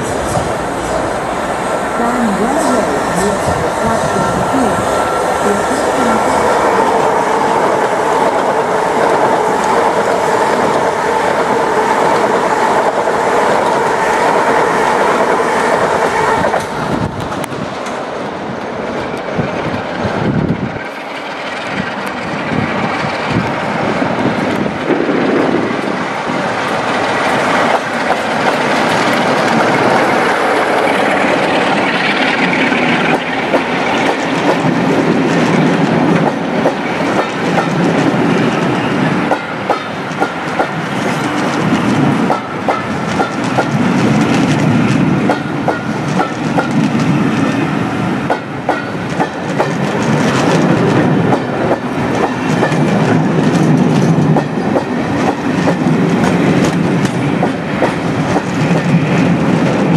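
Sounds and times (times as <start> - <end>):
diesel locomotive engine drone: 0.0 - 59.9
train wheels clattering over rails: 19.0 - 59.9.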